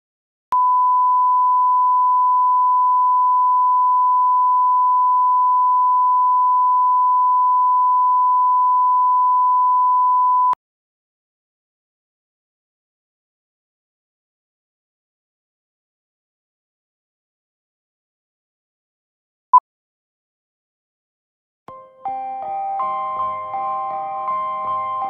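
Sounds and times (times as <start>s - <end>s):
steady line-up tone beep: 0.6s - 10.6s.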